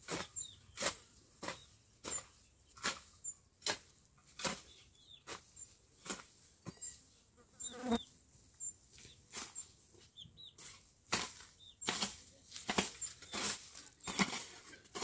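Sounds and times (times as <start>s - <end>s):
small bird chirps: 0.0s - 3.5s, 4.5s - 10.8s, 11.4s - 11.9s, 12.9s - 14.3s
leafy plants rustling: 10.6s - 15.0s.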